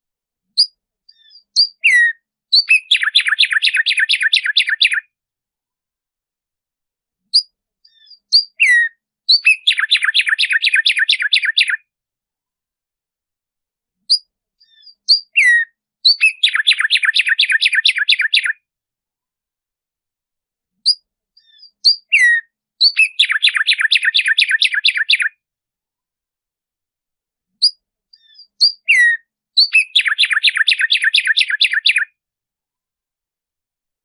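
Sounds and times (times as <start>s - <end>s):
sparrow singing: 0.4s - 5.1s, 7.2s - 11.9s, 14.0s - 18.6s, 20.8s - 25.4s, 27.6s - 32.2s.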